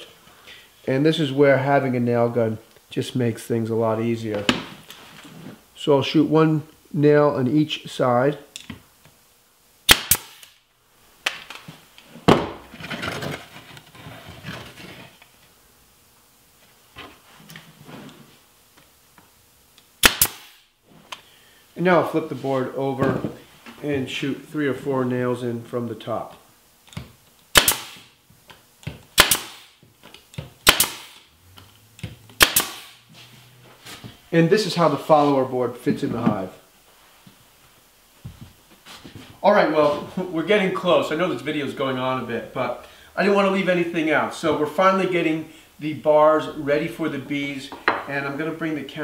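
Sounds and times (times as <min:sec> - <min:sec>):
nail gun firing: 0:09.9 - 0:10.6, 0:20.0 - 0:20.6, 0:27.5 - 0:28.1, 0:29.1 - 0:29.8, 0:30.6 - 0:31.2, 0:32.4 - 0:33.0
scraping and rustling: 0:12.1 - 0:15.2, 0:33.1 - 0:34.2.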